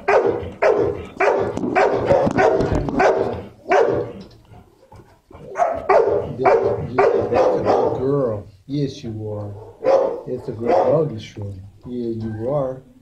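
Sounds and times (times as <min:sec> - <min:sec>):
dog barking: 0:00.0 - 0:08.2, 0:09.5 - 0:11.2.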